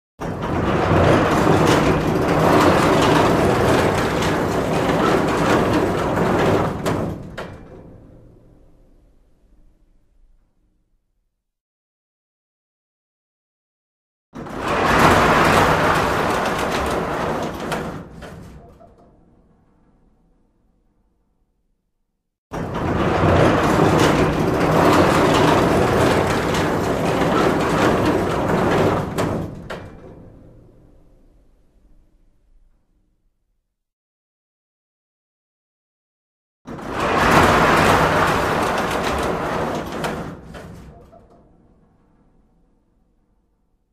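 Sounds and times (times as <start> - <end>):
loud clack: 0.2 - 8.3, 14.4 - 20.5, 22.5 - 31.0, 36.7 - 42.7
metal shutter rattling: 0.2 - 9.1, 14.4 - 21.2, 22.5 - 31.3, 36.7 - 43.7
shutter rattling: 14.4 - 18.7, 36.8 - 41.8.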